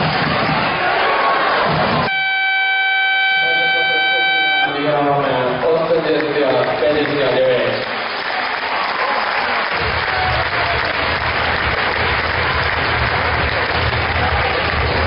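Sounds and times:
crowd applauding: 0.0s - 2.1s, 5.4s - 15.0s
music with deep pulsing bass: 9.8s - 15.0s.

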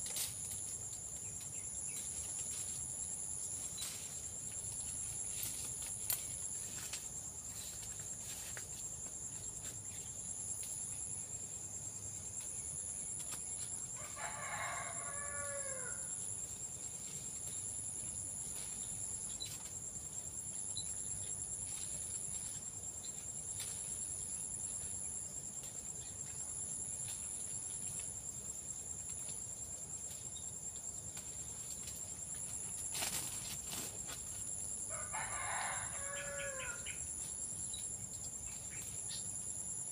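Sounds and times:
insects droning: 0.0s - 39.9s
rooster crowing: 14.0s - 16.1s, 34.9s - 37.0s.

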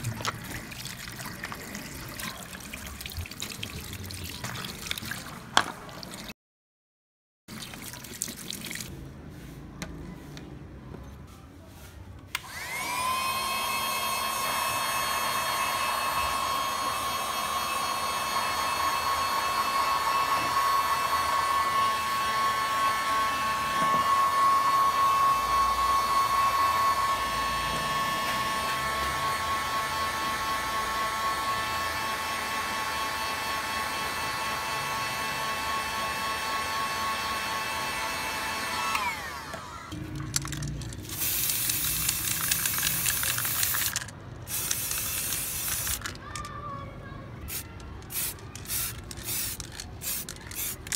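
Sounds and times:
heat gun fan whine: 12.3s - 40.0s, 41.2s - 46.1s
spray paint can hissing: 40.2s - 46.2s, 47.5s - 50.9s.

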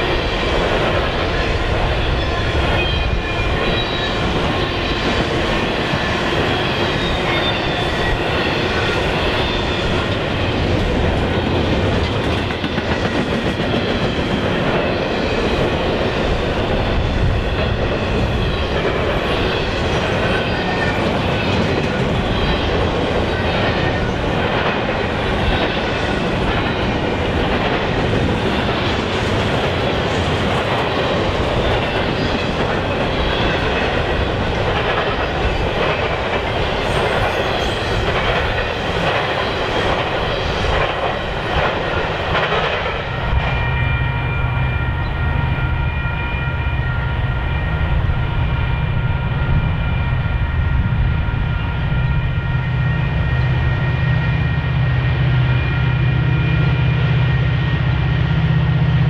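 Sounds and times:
clickety-clack over rail joints: 0.0s - 44.2s
freight train wheels rumbling: 0.0s - 59.0s.

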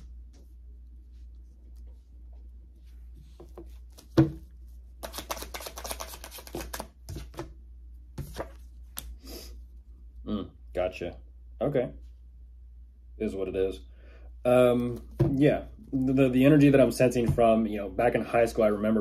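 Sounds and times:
cards shuffling: 3.4s - 7.5s, 8.2s - 9.3s.

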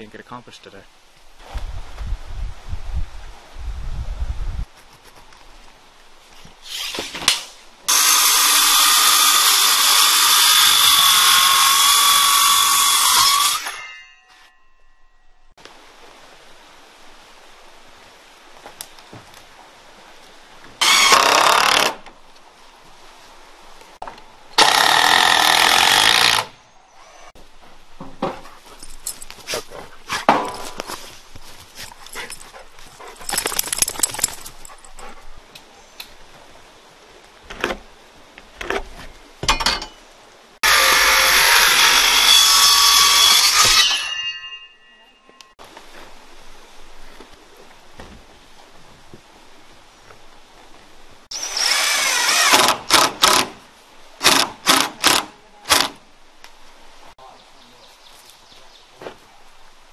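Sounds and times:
power tool running: 40.6s - 43.8s.

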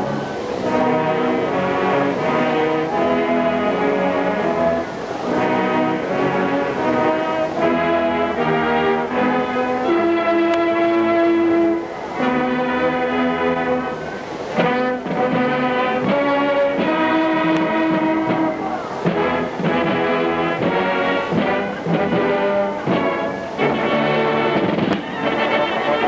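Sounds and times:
marching band playing: 0.0s - 26.0s
drum hits: 14.6s - 23.8s, 24.5s - 25.2s.

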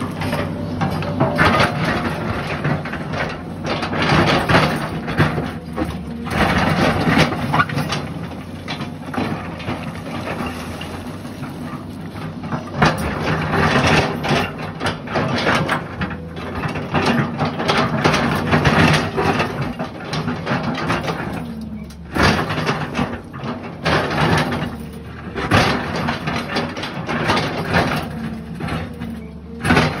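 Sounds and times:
bucket scraping through rock: 0.0s - 14.2s
excavator engine running: 0.0s - 30.0s.

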